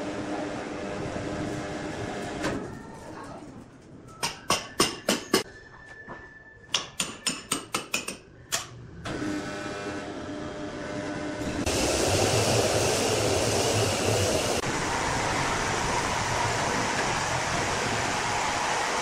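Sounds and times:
machinery hum: 8.8s - 19.0s.

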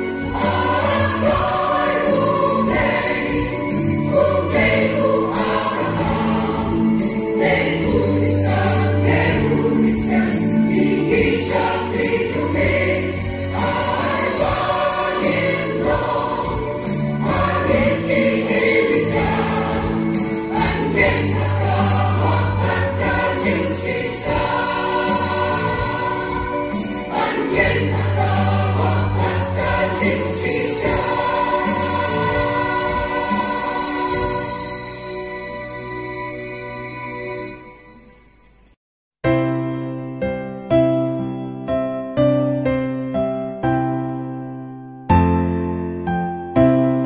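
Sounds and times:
mixed choir singing a hymn: 0.0s - 35.1s.

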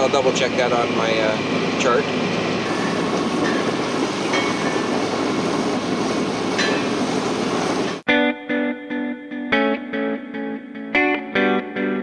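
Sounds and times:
boat motor drone: 0.0s - 8.0s
wind and water rushing: 0.9s - 8.0s.

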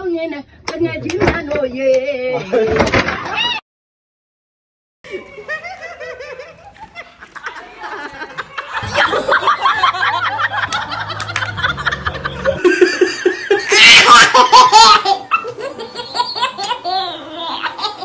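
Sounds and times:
people laughing: 5.1s - 18.0s.

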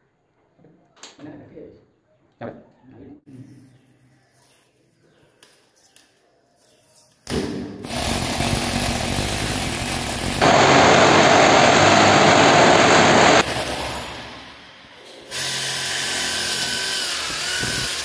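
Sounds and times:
electric drill boring into concrete: 7.8s - 18.0s.

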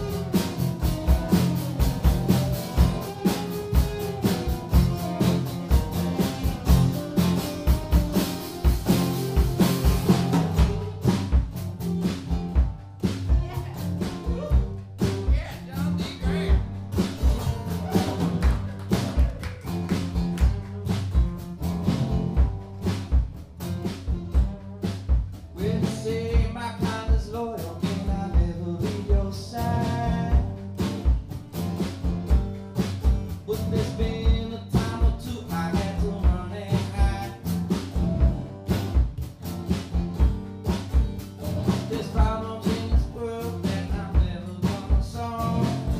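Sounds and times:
acoustic guitars: 0.0s - 45.9s
bass: 0.0s - 45.9s
steady kick drum beat: 0.0s - 45.9s
man singing: 13.4s - 18.3s, 25.5s - 30.6s, 33.4s - 37.5s, 41.7s - 45.9s.

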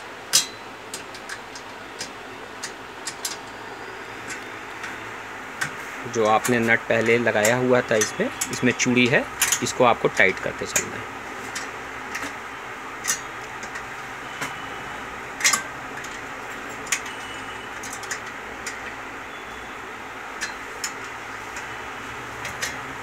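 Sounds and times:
steady background hum: 0.0s - 23.0s.

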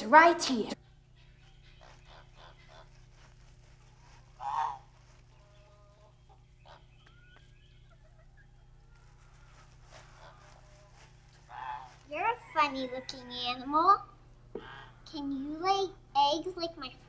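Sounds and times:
goose-like honking: 1.3s - 3.2s, 4.2s - 7.0s, 10.0s - 10.9s, 11.5s - 12.0s.

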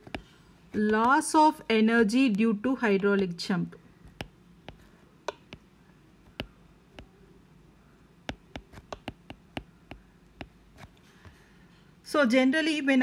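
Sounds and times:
stylus clicking on tablet screen: 0.0s - 1.2s, 4.1s - 7.2s, 8.2s - 11.0s
faint room hum: 0.0s - 13.0s.

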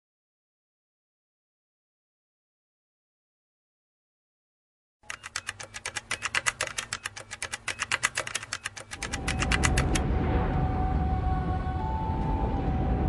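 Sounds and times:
typewriter key clicks: 5.0s - 10.0s
deep rumbling drone: 10.0s - 13.0s.

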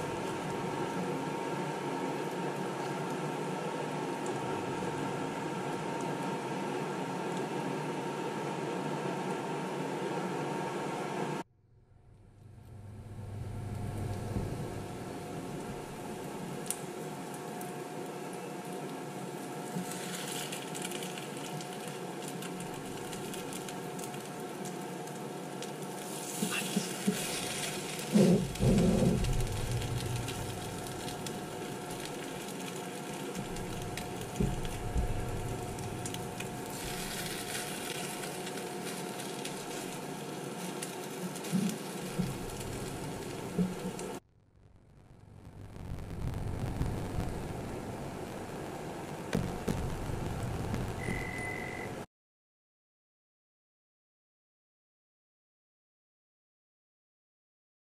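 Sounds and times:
food sizzling in frying pan: 19.0s - 44.2s.

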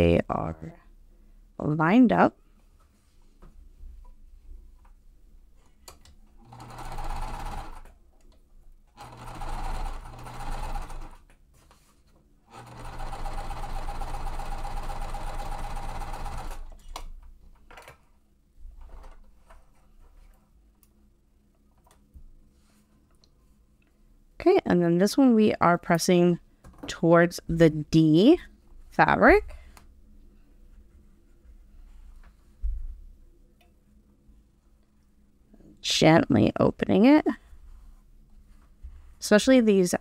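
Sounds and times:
sewing machine stitching: 6.4s - 7.9s, 8.9s - 11.2s, 12.5s - 17.0s.

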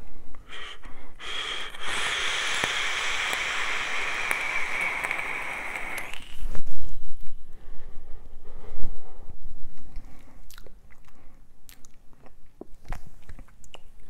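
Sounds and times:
air hissing through atomizer: 0.4s - 6.6s
faint crackles of heated coil: 1.6s - 6.6s.

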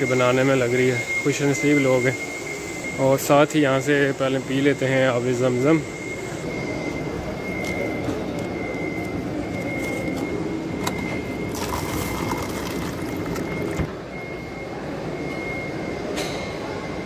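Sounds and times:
thin high tone: 0.0s - 14.8s
tap water running into cup: 11.5s - 13.9s.

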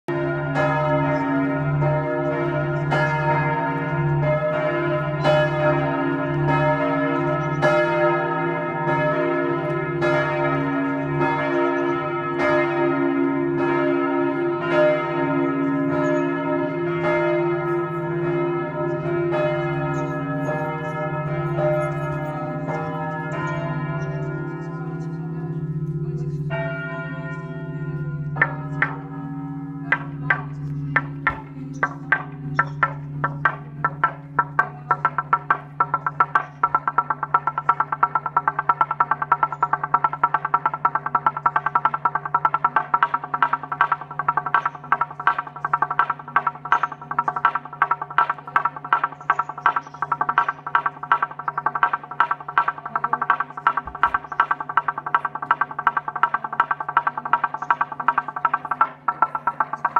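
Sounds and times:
church bells ringing: 0.1s - 59.9s
wooden plank beaten: 29.9s - 59.9s.

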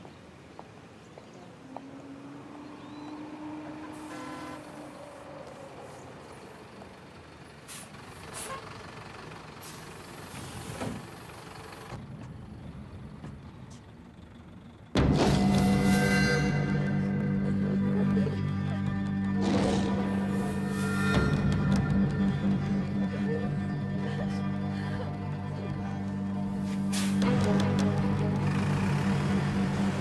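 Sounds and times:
bus engine running: 1.0s - 30.0s.

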